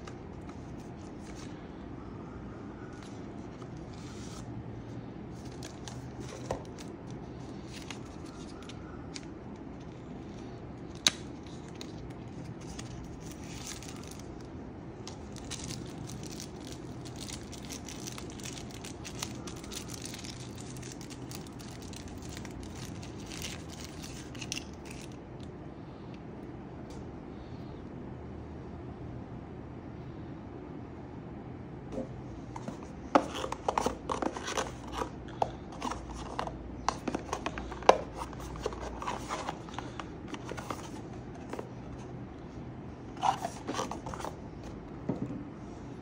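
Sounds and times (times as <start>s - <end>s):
steady low hum: 0.0s - 46.0s
packaging rustling and crinkling: 11.0s - 14.5s, 15.1s - 25.2s, 32.6s - 41.8s, 43.2s - 44.8s.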